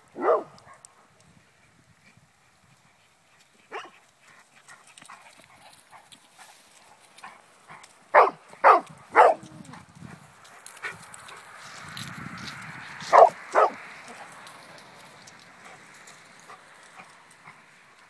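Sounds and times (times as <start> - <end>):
dog barking: 0.2 - 0.9, 3.7 - 4.0, 8.1 - 9.6, 13.1 - 14.2.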